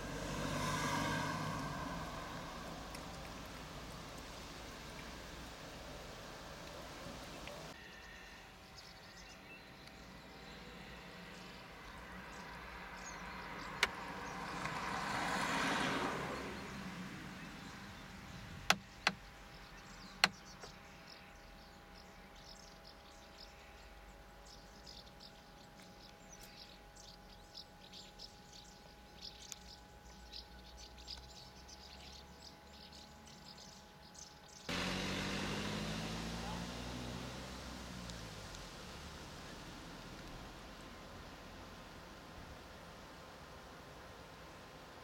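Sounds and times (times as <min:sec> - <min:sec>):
small birds chirping: 0:00.0 - 0:15.2, 0:16.2 - 0:45.0.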